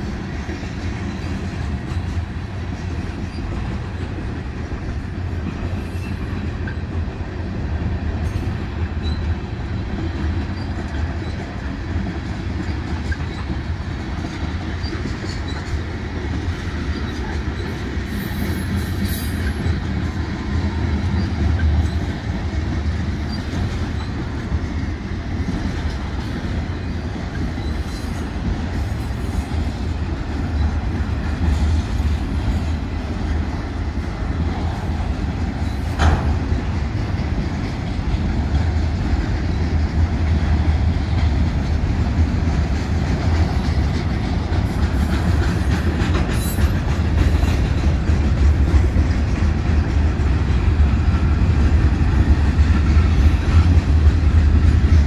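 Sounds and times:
freight train wheels rumbling: 0.0s - 55.0s.

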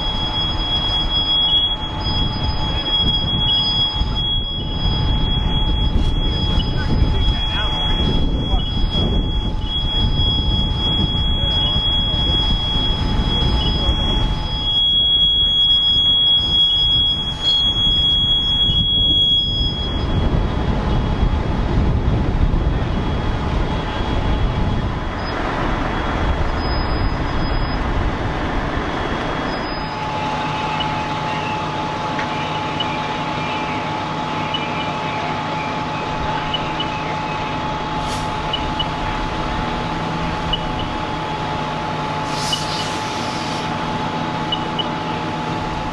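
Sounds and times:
high-pitched tone: 0.0s - 20.3s
engine whine: 0.0s - 45.9s
fire truck diesel engines rumbling: 0.0s - 45.9s.

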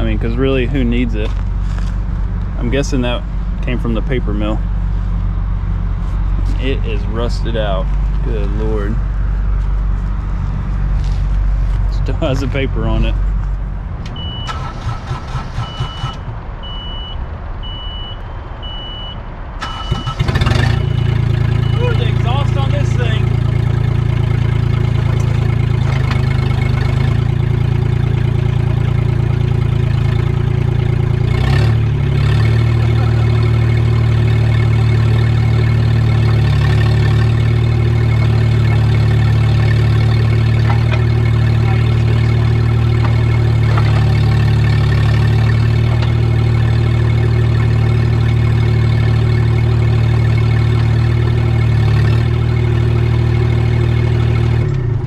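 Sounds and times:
engine idling loudly: 20.2s - 54.8s.

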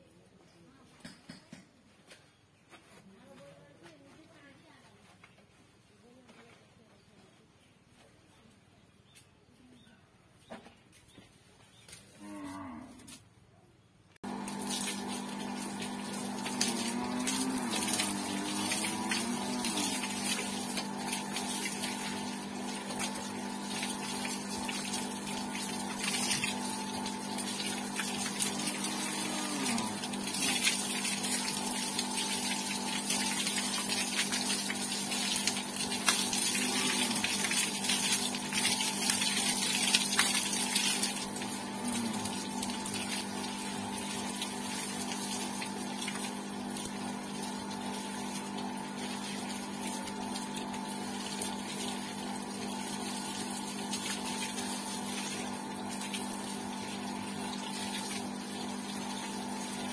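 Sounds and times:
electric water pump humming: 14.2s - 59.9s
hose water splashing: 14.2s - 59.9s.

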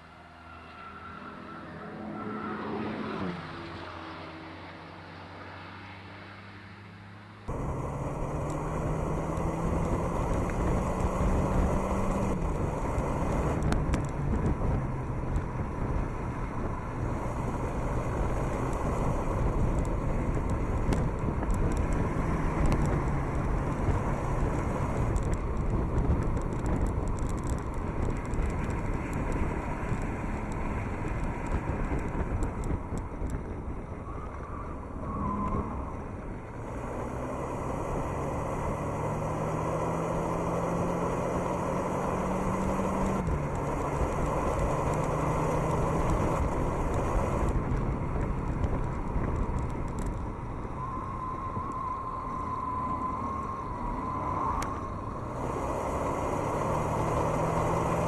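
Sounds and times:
sports car engine at speed: 0.0s - 58.0s
wind and road noise: 0.0s - 58.0s.

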